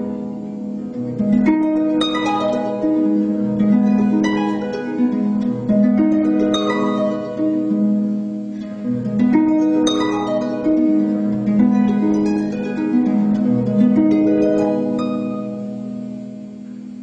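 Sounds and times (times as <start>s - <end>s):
harp plucked notes: 0.0s - 17.0s.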